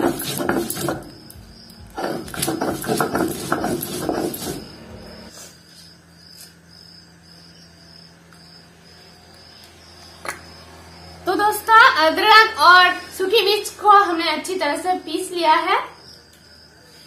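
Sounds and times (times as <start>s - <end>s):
stone grinding gritty scraping: 0.0s - 5.3s.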